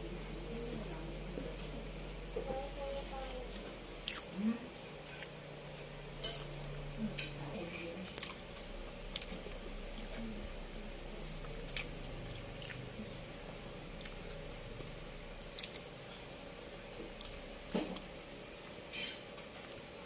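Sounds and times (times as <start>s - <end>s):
low closed-mouth hum: 0.0s - 20.0s
chewing sticky rice cakes: 0.2s - 2.2s, 2.8s - 20.0s
wet mouth clicks and smacks: 15.4s - 15.8s.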